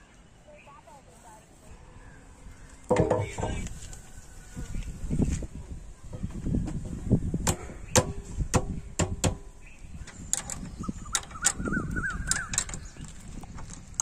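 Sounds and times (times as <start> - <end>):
bird chirping: 9.4 - 13.7
hand tool clicks and knocks: 10.1 - 14.0.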